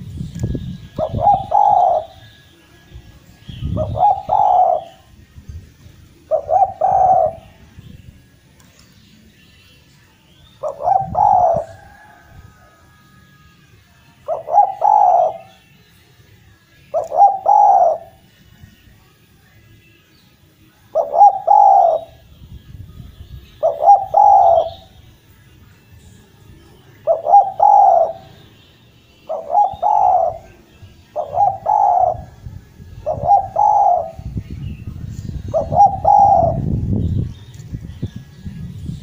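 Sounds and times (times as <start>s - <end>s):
dove cooing: 0.9s - 2.3s, 3.7s - 5.1s, 6.2s - 7.6s, 10.6s - 12.9s, 14.2s - 15.6s, 16.9s - 18.2s, 20.9s - 22.2s, 23.6s - 24.9s, 27.0s - 28.4s, 29.2s - 32.4s, 33.0s - 34.4s, 35.2s - 36.7s.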